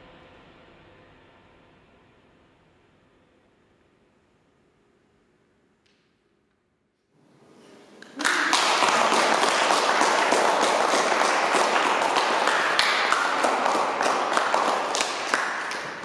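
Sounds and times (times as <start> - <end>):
audience applauding: 7.9 - 16.0.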